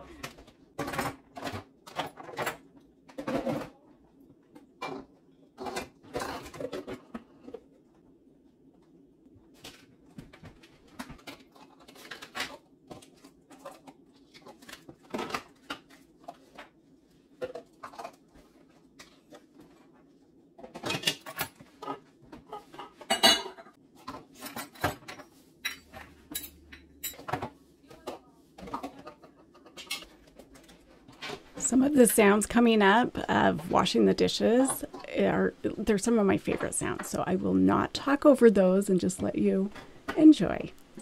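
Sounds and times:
utensils and containers clattering: 0.0 - 3.8, 4.8 - 7.8, 20.6 - 38.2.

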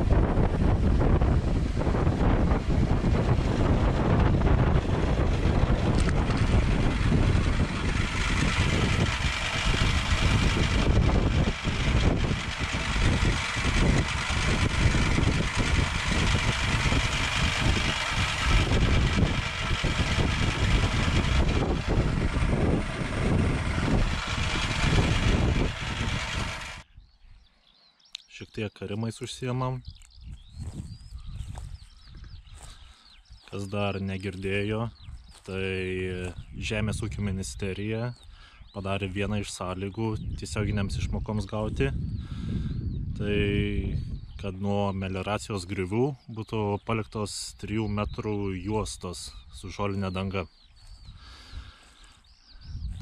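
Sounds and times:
tractor engine running: 0.0 - 26.8
wind buffeting microphone: 0.0 - 27.2, 29.9 - 33.8, 34.4 - 44.6, 50.6 - 53.0.

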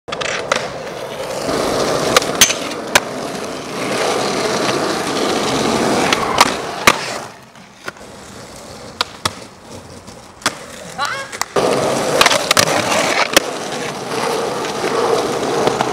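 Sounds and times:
skateboard clacking on ground: 0.1 - 15.9
skateboard wheels rolling on asphalt: 0.1 - 15.9.

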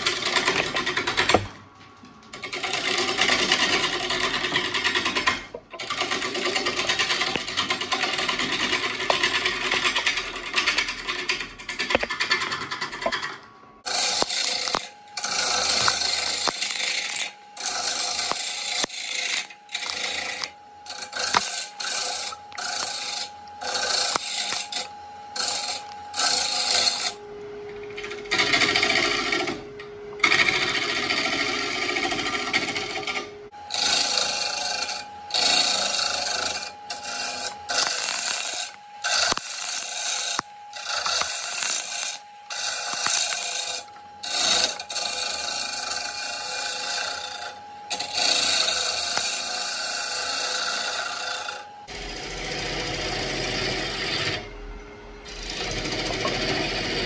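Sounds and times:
gouge scraping spinning wood: 0.0 - 1.5, 2.3 - 54.5, 55.2 - 57.0
lathe motor hum: 13.8 - 54.4, 55.2 - 57.0.

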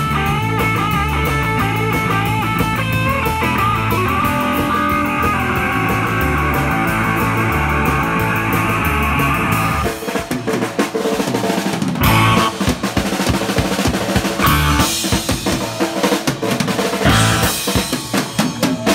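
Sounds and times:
distorted electric guitar: 0.0 - 10.1, 12.0 - 12.9, 14.3 - 15.6, 17.0 - 18.9
drum kit playing: 0.0 - 18.9.

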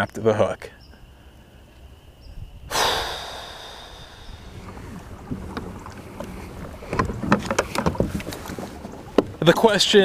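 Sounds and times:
water and wind noise: 1.4 - 10.0
sudden loud rush: 2.7 - 5.0.

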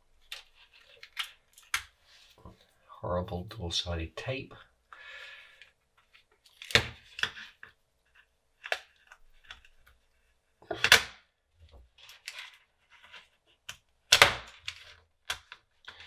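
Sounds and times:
faint ticks and scrapes: 0.2 - 2.8, 5.5 - 10.7, 11.6 - 13.9.

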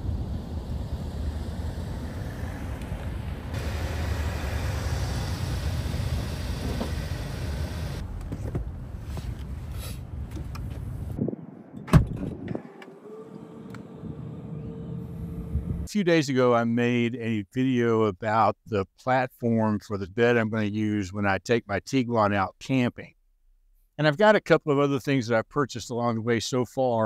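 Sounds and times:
car rumbling on road: 0.0 - 11.2, 12.0 - 15.9
sharp thump: 11.2 - 12.6.

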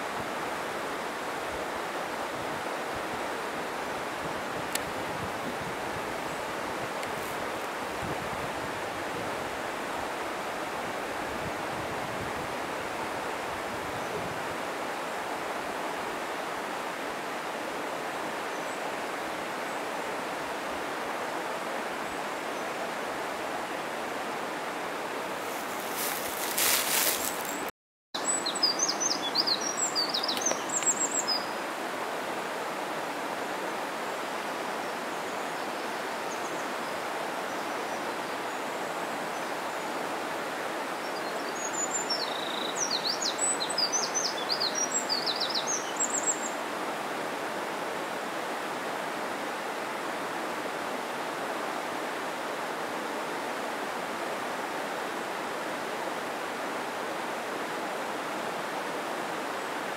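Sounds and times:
mountain stream rushing: 0.0 - 59.9
small bird chirping: 25.5 - 31.5.

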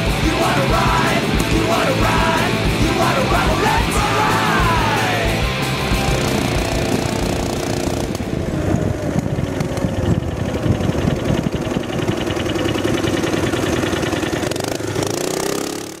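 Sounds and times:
mini bike engine running: 0.0 - 16.0.

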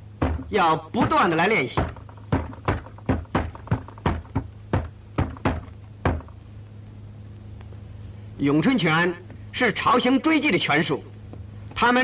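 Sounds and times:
hands striking wooden dummy: 0.2 - 6.4.

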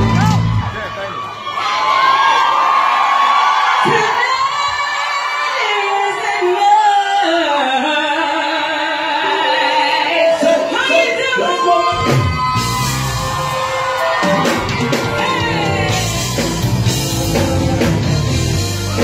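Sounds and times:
band bass and drums: 0.0 - 0.9, 11.9 - 19.0
crowd yelling and whooping: 0.0 - 6.6, 9.0 - 19.0.

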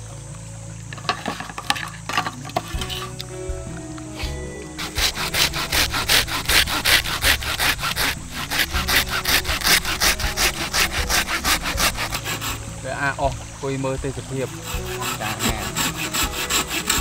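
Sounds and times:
wood being sawn by hand: 4.2 - 12.7, 14.3 - 17.0.

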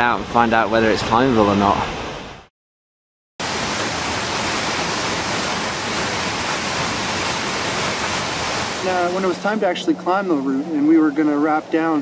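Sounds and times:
waterfall roaring: 3.4 - 12.0.

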